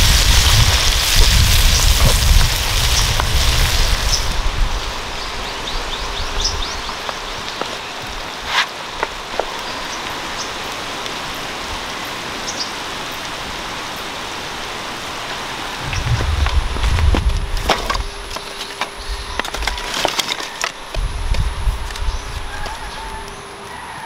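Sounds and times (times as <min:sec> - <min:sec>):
sharp crackles: 0:00.0 - 0:04.4, 0:15.8 - 0:23.4
shrimp sizzling in butter: 0:00.0 - 0:04.4.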